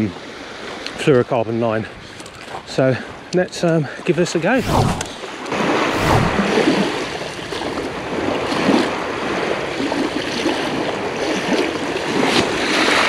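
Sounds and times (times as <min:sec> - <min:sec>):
waves washing on shingle beach: 0:05.9 - 0:13.0.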